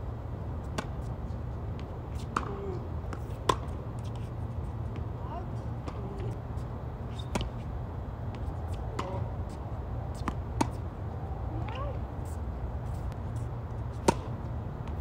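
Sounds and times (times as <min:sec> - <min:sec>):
tennis ball bouncing: 0:00.6 - 0:01.1, 0:01.7 - 0:06.4, 0:07.1 - 0:10.8, 0:13.9 - 0:15.0
racquets striking tennis ball: 0:01.7 - 0:04.3, 0:07.1 - 0:10.8, 0:13.9 - 0:15.0.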